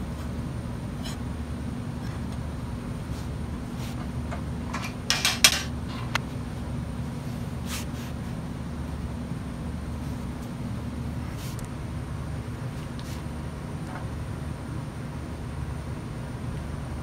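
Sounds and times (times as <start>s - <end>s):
metal clanks: 4.4s - 6.2s.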